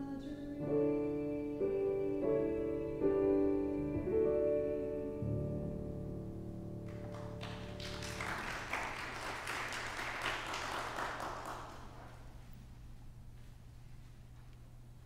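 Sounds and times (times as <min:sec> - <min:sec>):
congregation applauding: 0:06.9 - 0:12.5.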